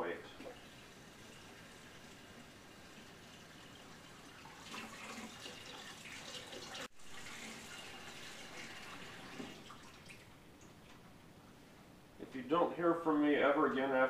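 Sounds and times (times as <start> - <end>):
faucet water running into sink: 0.4 - 10.3.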